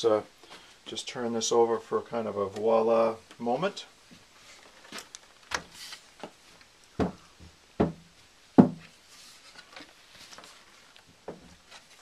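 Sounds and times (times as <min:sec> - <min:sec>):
handling rustling: 0:08.9 - 0:12.0.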